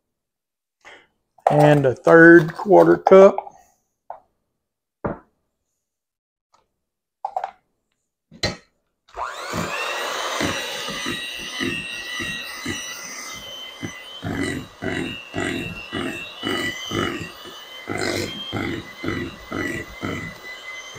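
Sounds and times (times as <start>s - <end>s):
electric hand mixer whining: 9.1s - 20.9s.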